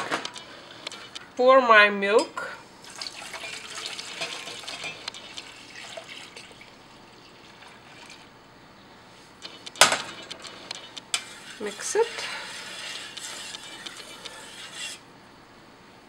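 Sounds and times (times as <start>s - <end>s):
milk pouring into metal bowl: 2.8s - 8.3s.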